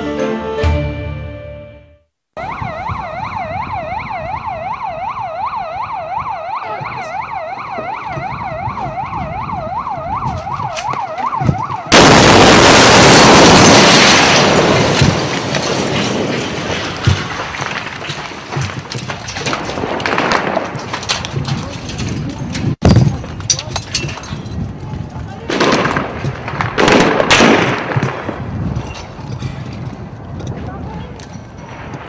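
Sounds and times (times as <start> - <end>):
siren wailing rapidly: 2.4 - 12.0
very loud bomb blast: 11.9 - 15.2.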